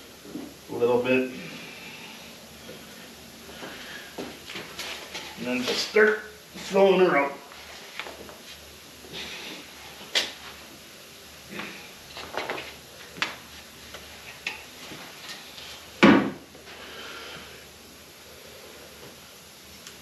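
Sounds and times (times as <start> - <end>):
loud thump: 16.0 - 16.4.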